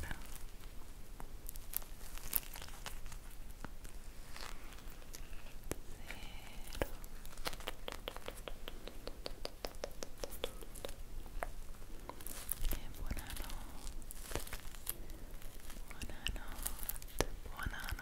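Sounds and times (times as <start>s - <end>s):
tongue clicking: 7.5s - 11.0s.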